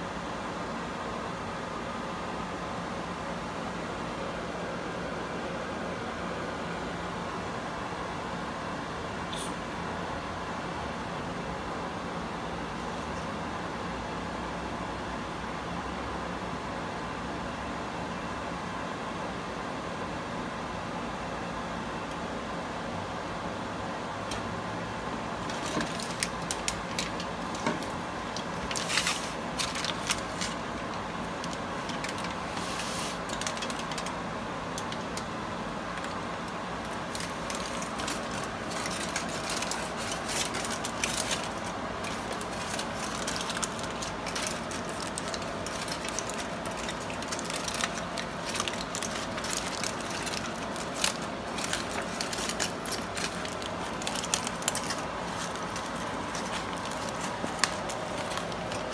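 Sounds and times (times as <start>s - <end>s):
steady background hum: 0.0s - 58.9s
aluminium foil crinkling: 25.4s - 58.9s.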